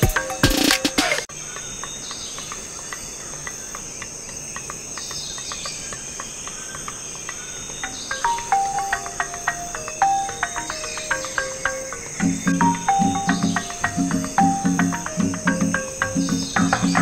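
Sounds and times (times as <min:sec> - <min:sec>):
music with a beat: 0:00.0 - 0:01.3, 0:08.3 - 0:17.0
insects chirring: 0:00.0 - 0:17.0.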